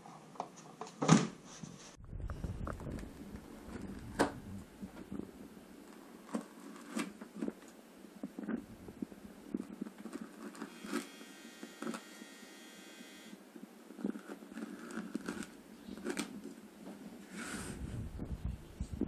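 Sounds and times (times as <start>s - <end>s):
brief low rumble: 2.0s - 5.3s
thin steady whine: 7.4s - 14.2s.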